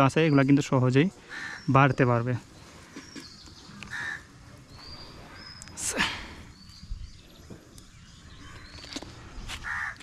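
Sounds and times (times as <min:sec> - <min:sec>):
small birds chirping: 0:00.0 - 0:10.0
crow cawing: 0:01.2 - 0:01.7, 0:03.8 - 0:04.3, 0:09.6 - 0:10.0.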